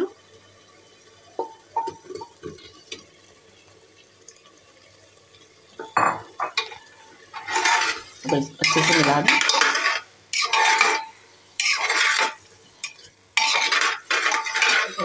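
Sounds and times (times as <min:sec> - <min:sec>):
metal spoon scraping pot: 0:07.4 - 0:15.0.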